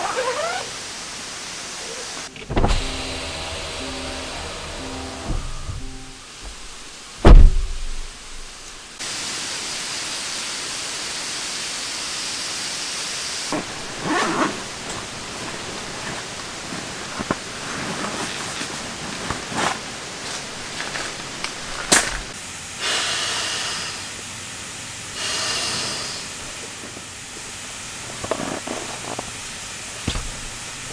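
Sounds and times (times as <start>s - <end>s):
background hiss: 0.0s - 30.9s
rustling of bags: 13.6s - 22.3s.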